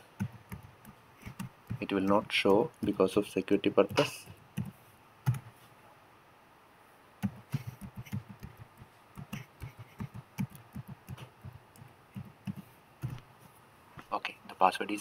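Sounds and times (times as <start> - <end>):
keyboard keys clicking: 7.2 - 13.2.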